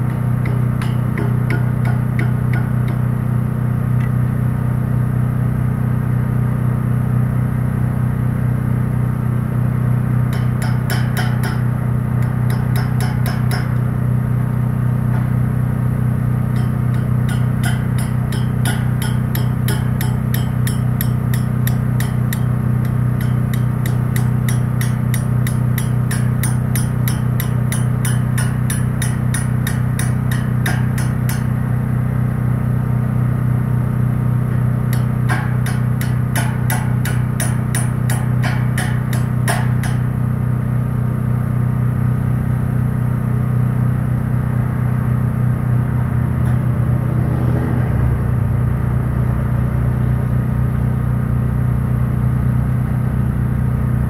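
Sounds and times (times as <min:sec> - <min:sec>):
hammer tapping on metal: 0:00.0 - 0:03.1, 0:10.3 - 0:13.9, 0:16.5 - 0:31.6, 0:34.9 - 0:40.1
engine idling: 0:00.0 - 0:54.0.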